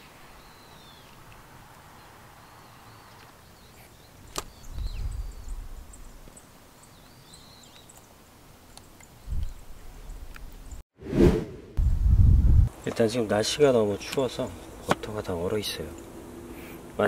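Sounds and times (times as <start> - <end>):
birds chirping: 0.0 - 1.2, 1.9 - 10.8.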